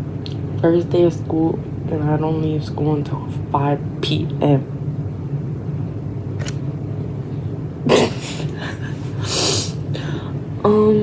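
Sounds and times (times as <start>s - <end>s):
low room hum: 0.0s - 11.0s
breathy exhale: 9.1s - 10.4s.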